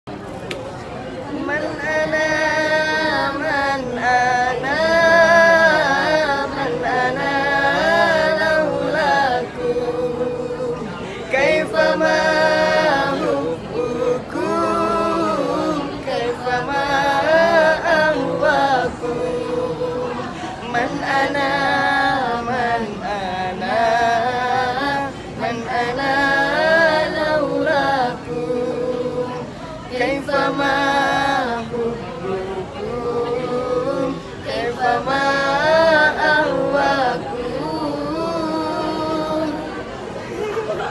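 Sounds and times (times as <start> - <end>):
group singing devotional song: 1.3 - 40.9.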